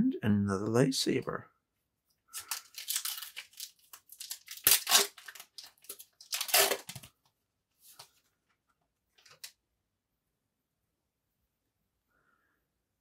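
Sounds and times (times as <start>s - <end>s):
wrapper tearing and crinkling: 2.3s - 7.1s
cards rustling: 2.3s - 7.2s.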